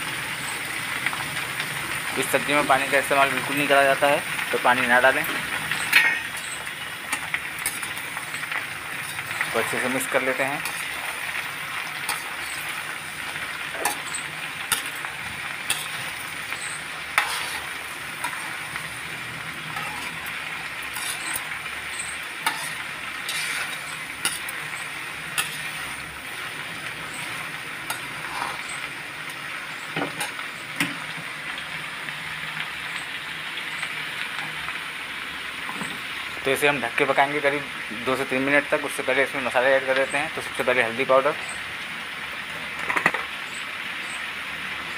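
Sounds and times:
vegetables sizzling in oil: 0.0 - 44.9
spatula scraping a pan: 5.7 - 26.2, 27.0 - 28.9.

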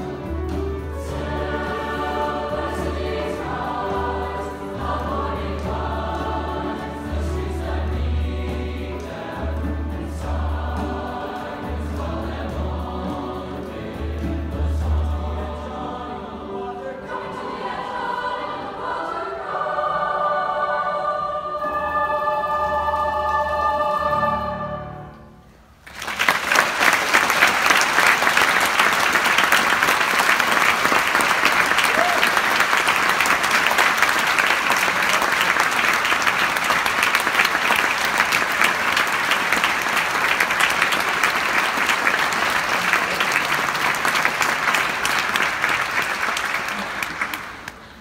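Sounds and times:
choir and piano chord: 0.2 - 25.4
audience applauding: 25.8 - 48.0.

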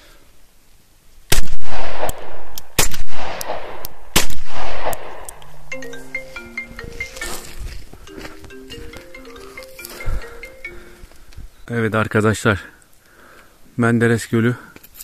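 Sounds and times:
gunshots with echo: 1.3 - 5.4
music with plucked notes: 5.7 - 11.2.

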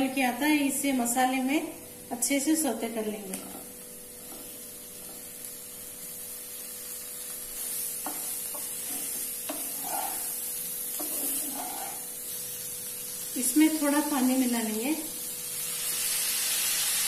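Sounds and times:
frying sizzle: 0.0 - 17.0
spatula scraping pan: 7.6 - 12.4.

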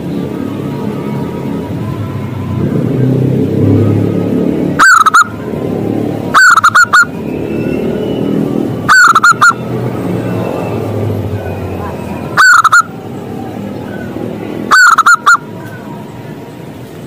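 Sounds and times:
dove cooing: 4.8 - 5.3, 8.9 - 9.6, 12.4 - 12.9, 14.7 - 15.4.

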